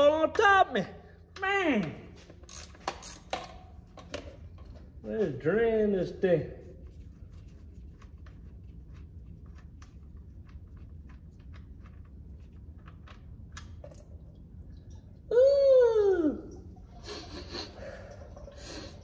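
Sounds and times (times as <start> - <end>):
faint low hum: 4.3 - 19.0.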